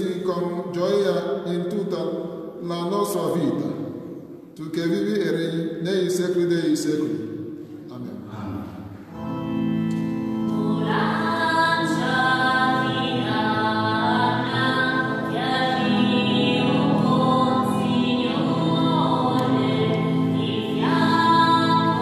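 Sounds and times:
voices singing a hymn: 0:08.4 - 0:22.0.

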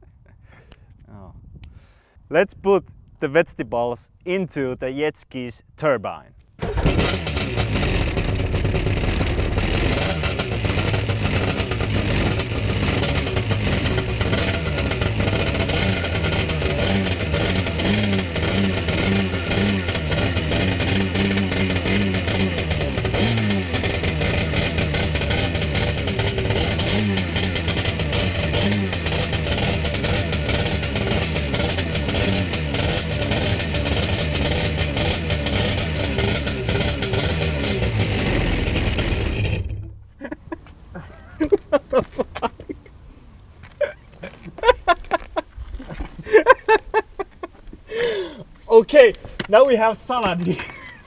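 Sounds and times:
jet ski engine running: 0:06.6 - 0:39.8.

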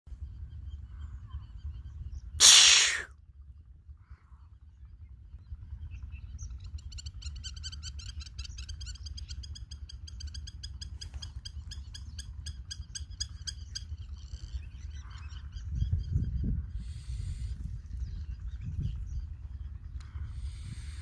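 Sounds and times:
animal chirping rapidly: 0:02.4 - 0:03.1
low rumble: 0:13.8 - 0:21.0.

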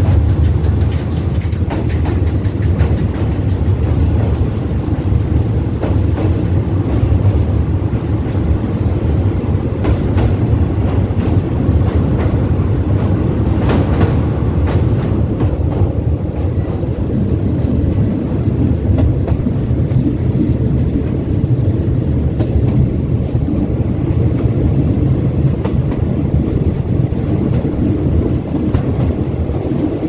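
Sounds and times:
wheels clicking over rail joints: 0:00.0 - 0:07.6
train wheels rumbling on rails: 0:00.0 - 0:30.0.

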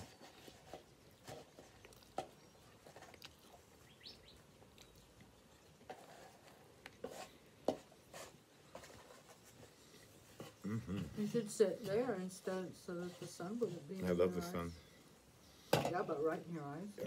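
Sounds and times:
man biting and chewing: 0:01.1 - 0:05.9.

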